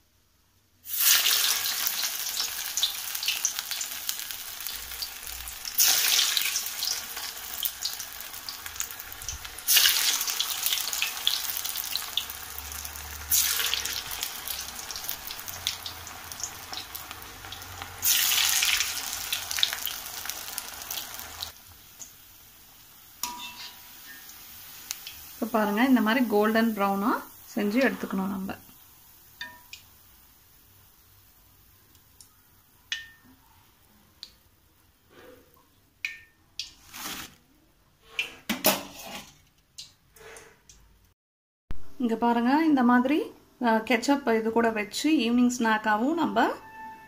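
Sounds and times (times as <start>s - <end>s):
sizzle flaring as food drops in oil: 0.8s - 31.1s
food deep-frying in hot oil: 0.8s - 35.0s.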